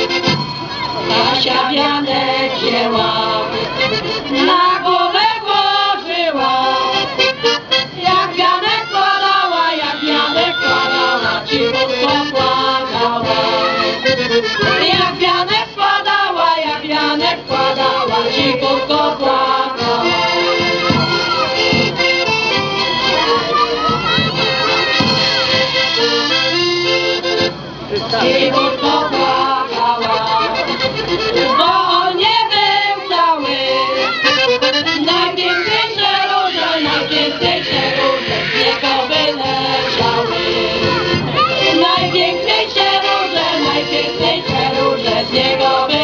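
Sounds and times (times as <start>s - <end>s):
piano accordion: 0.0s - 0.4s, 1.0s - 46.0s
women's choir singing in unison: 1.0s - 14.0s, 14.7s - 20.8s, 28.2s - 30.7s, 31.5s - 34.1s, 35.0s - 41.0s, 41.7s - 46.0s.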